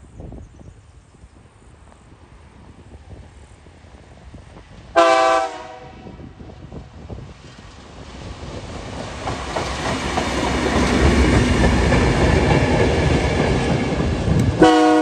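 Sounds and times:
diesel locomotive engines: 0.0 - 15.0
locomotive horn blast: 5.0 - 6.3, 14.6 - 15.0
wheels rolling on rails: 6.7 - 14.6.

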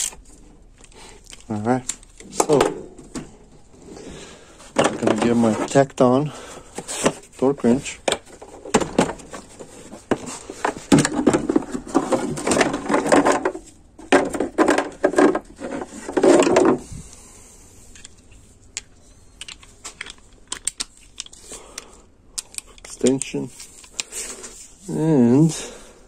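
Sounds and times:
plastic case and wrench clattering: 4.7 - 6.0, 6.8 - 16.8.

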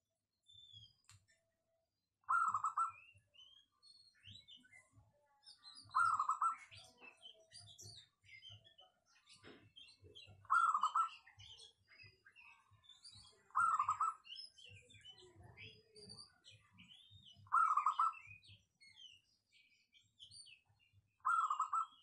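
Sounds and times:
small birds chirping: 0.4 - 1.6, 2.2 - 22.0.

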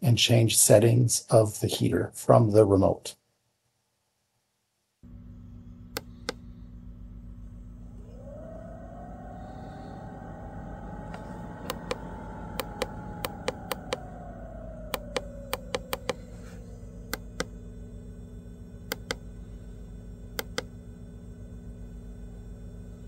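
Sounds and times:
diesel heater humming: 5.0 - 23.0
remote buttons clicking: 14.9 - 16.2, 20.4 - 20.7.

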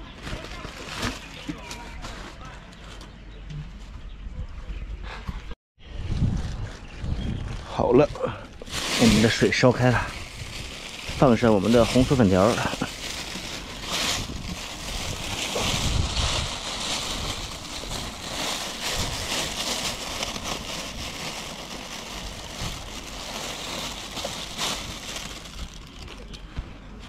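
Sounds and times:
bags rustling and crinkling: 0.0 - 3.0, 8.3 - 26.5
wind rumble on microphone: 1.9 - 27.0.

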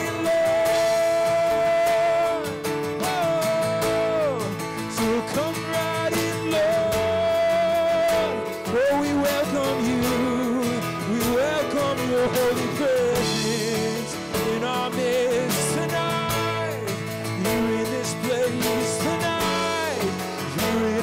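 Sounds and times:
people singing: 0.0 - 4.4
guitar: 0.0 - 21.0
percussion: 0.0 - 21.0.

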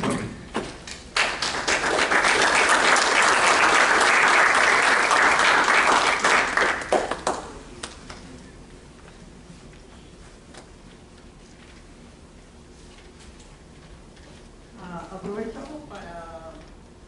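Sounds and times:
audience applauding: 1.2 - 7.6.

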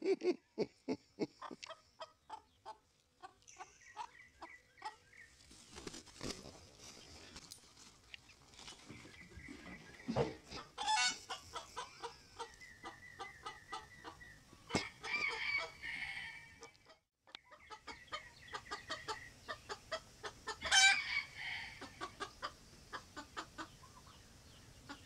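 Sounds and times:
roosters clucking: 0.0 - 25.0
rooster squawk: 10.8 - 11.3, 20.6 - 22.0.

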